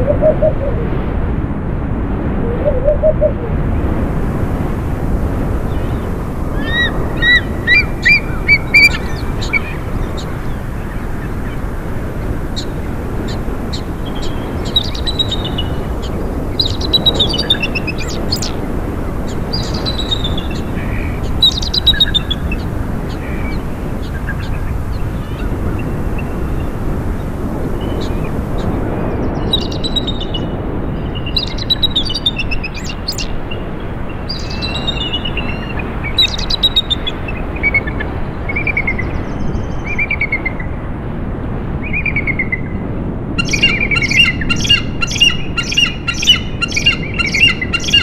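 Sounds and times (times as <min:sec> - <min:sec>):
eagle chirping: 0:00.0 - 0:00.8, 0:06.6 - 0:10.3, 0:43.4 - 0:48.0
wind rushing: 0:00.0 - 0:48.0.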